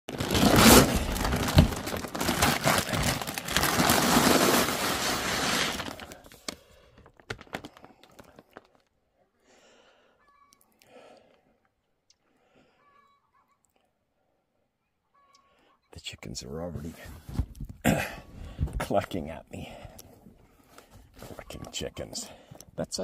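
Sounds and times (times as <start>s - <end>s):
plastic sack crinkling: 0.1s - 8.9s.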